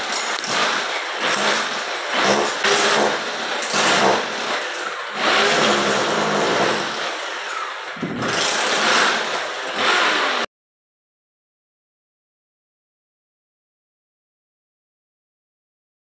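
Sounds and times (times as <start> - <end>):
electric drill boring through metal: 0.0 - 10.5.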